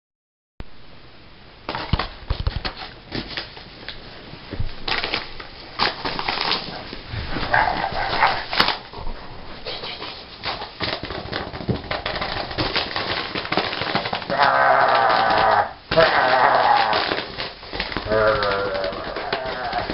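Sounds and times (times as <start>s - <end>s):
plastic mailer crinkling: 4.8s - 8.9s, 9.8s - 19.9s.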